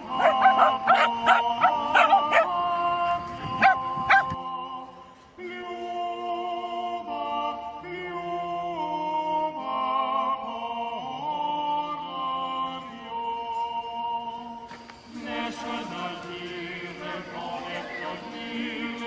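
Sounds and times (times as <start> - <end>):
background music: 0.0 - 19.0
dog barking: 0.1 - 2.6, 3.6 - 4.4.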